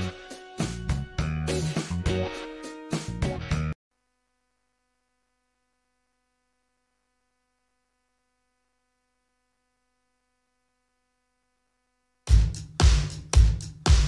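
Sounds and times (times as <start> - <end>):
faint steady hum: 4.0 - 12.3.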